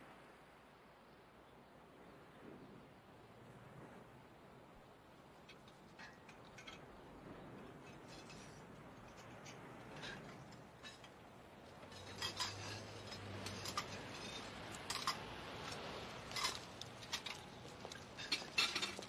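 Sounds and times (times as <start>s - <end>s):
faint steady background noise: 0.0s - 19.0s
dishes and cutlery clinking: 9.2s - 19.0s.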